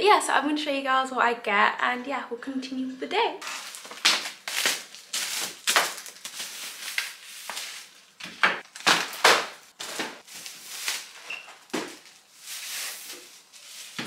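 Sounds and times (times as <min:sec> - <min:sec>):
plastic bags rustling: 0:03.4 - 0:14.0.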